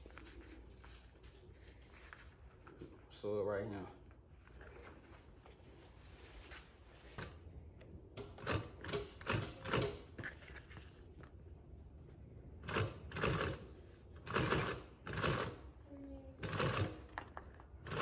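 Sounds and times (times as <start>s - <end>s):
sewing machine stitching: 12.7s - 13.6s, 14.2s - 15.6s, 16.4s - 17.1s.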